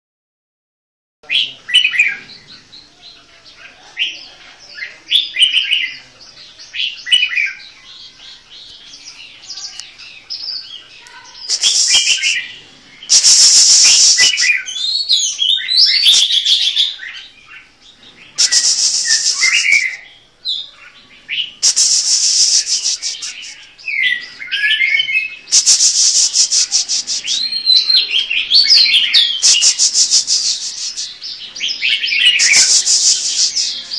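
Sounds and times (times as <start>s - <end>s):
songbirds chirping: 1.2s - 33.9s
bird rattling trills: 25.5s - 27.3s, 29.2s - 31.2s, 32.2s - 33.7s.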